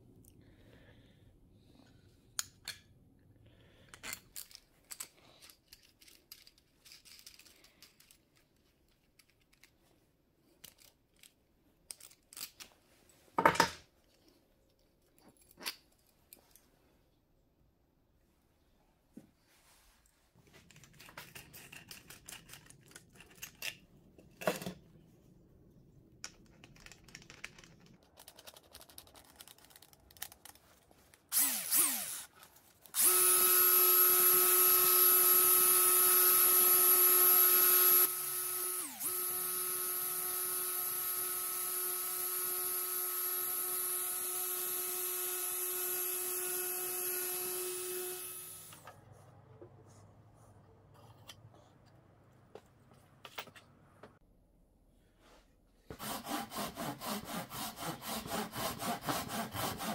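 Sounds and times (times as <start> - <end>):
angle grinder motor whine: 31.3 - 32.3, 33.0 - 48.9.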